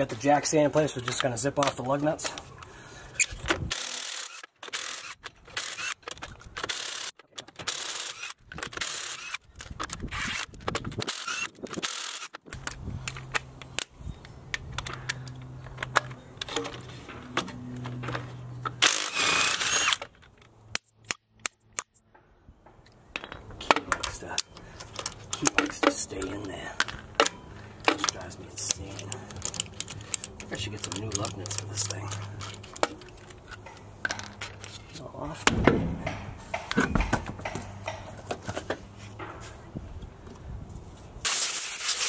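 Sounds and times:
impact wrench bursts: 0:18.8 - 0:20.0, 0:41.3 - 0:42.0.

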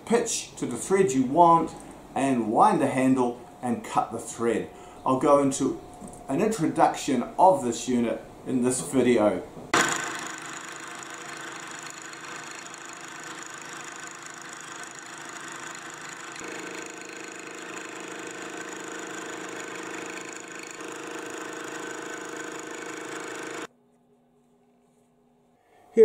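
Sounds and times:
milling machine cutting: 0:09.8 - 0:23.7.

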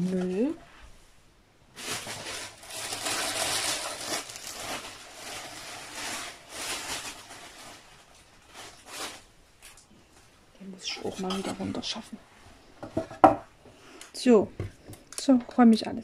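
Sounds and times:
plastic packaging crinkling: 0:01.7 - 0:09.9.

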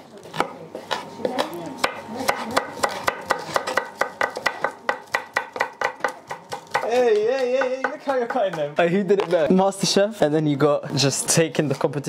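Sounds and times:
knives chopping on wooden board: 0:00.3 - 0:08.7.

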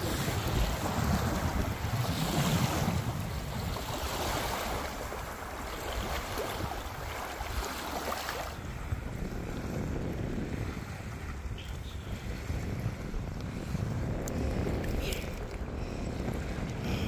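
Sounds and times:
water splashing in shallows: 0:00.0 - 0:08.6
small waves washing on shore: 0:00.0 - 0:17.0
wind buffeting microphone: 0:00.0 - 0:17.0.

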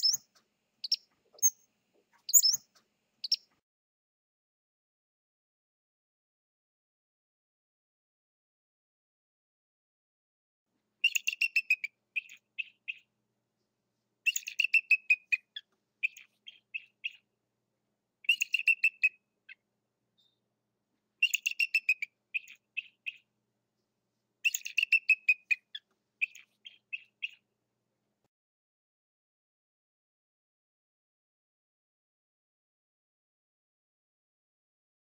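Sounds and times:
eagle short chirps: 0:00.0 - 0:01.6, 0:02.3 - 0:02.6
eagle high piping whistles: 0:02.3 - 0:02.6.

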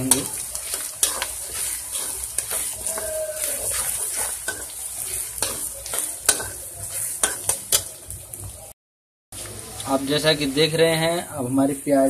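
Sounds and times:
spatula scraping pan: 0:00.0 - 0:08.0
onions sizzling in oil: 0:00.0 - 0:08.8, 0:09.4 - 0:12.0.

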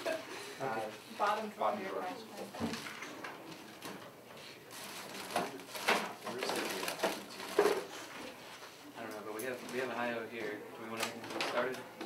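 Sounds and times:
plastic wrappers crinkling: 0:04.7 - 0:08.0.

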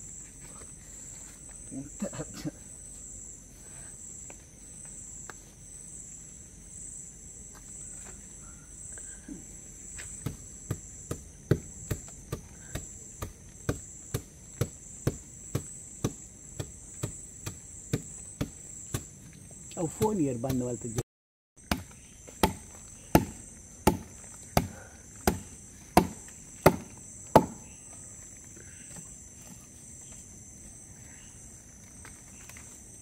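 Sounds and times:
crickets chirring: 0:00.0 - 0:21.0, 0:21.6 - 0:33.0
stone knocking on tree trunk: 0:21.7 - 0:25.4, 0:26.0 - 0:27.6.

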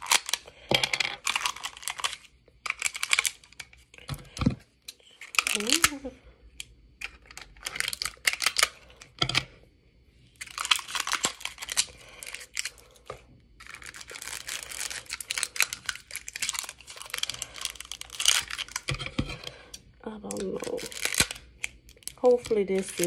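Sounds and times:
scissors cutting plastic: 0:00.0 - 0:03.8, 0:05.2 - 0:06.0, 0:13.6 - 0:23.0
plastic packaging crinkling: 0:00.0 - 0:04.3, 0:05.0 - 0:06.1, 0:07.0 - 0:09.1, 0:10.4 - 0:23.0.

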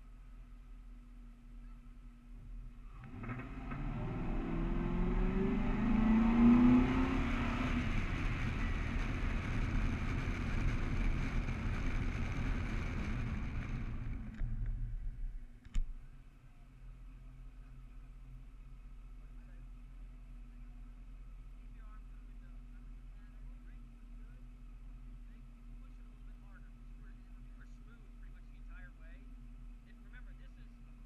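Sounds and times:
wind and tyre noise: 0:00.3 - 0:17.2
car engine accelerating: 0:01.6 - 0:15.7.

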